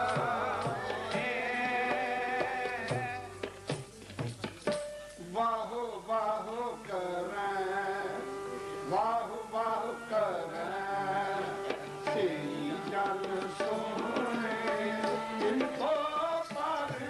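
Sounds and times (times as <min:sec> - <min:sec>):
man singing a devotional hymn: 0:00.0 - 0:03.4, 0:05.2 - 0:17.0
tabla strokes: 0:00.0 - 0:05.4, 0:10.0 - 0:17.0
harmonium: 0:00.0 - 0:17.0.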